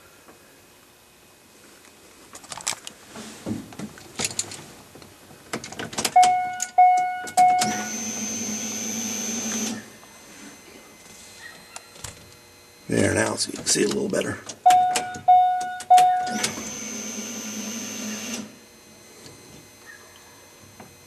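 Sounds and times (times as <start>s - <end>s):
car warning chime: 6.2s - 11.0s, 14.6s - 17.2s
small electric motor whining: 7.4s - 13.0s, 16.0s - 21.0s.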